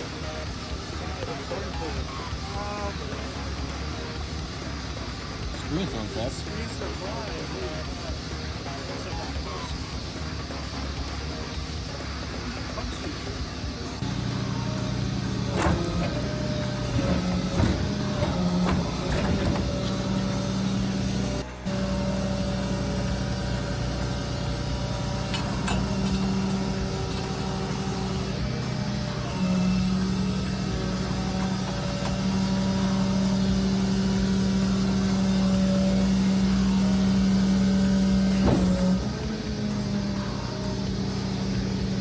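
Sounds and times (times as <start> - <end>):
tow truck engine humming: 0.0 - 42.0
metal and grit crunching: 14.1 - 42.0.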